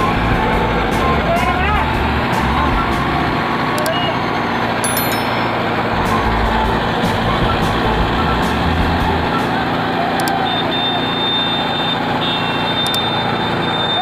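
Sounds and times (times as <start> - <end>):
tractor diesel engine running: 0.0 - 14.0
thin steady high tone: 4.8 - 7.0.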